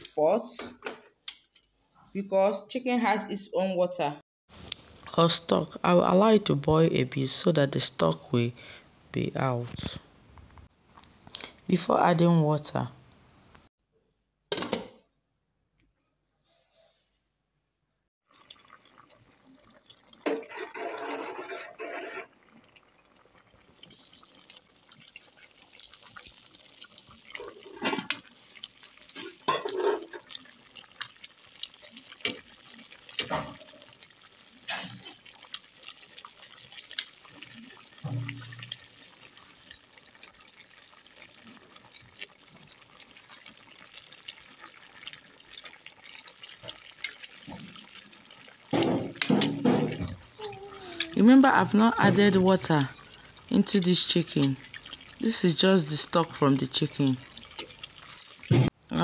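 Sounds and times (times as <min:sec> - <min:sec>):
chicken simmering in pot: 0:18.3 - 0:59.0
metal spoon scraping pot: 0:20.3 - 0:22.3.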